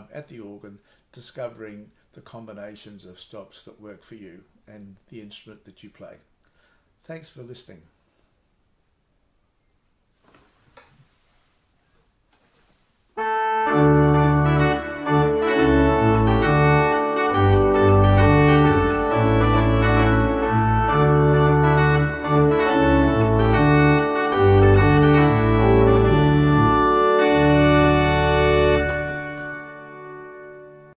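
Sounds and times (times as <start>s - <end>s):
electronic organ chords: 13.2s - 30.9s.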